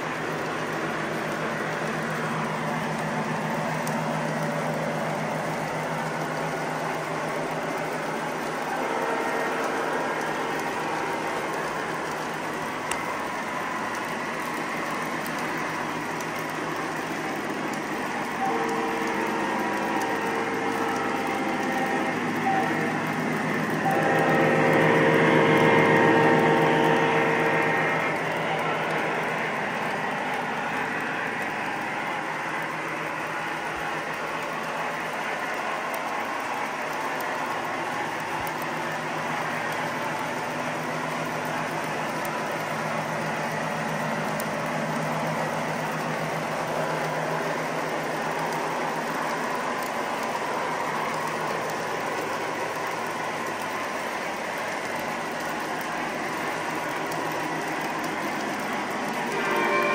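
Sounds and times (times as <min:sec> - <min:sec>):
low steady hum: 0:00.0 - 0:59.9
model train cars clattering: 0:00.0 - 0:59.9
held tones: 0:59.1 - 0:59.9.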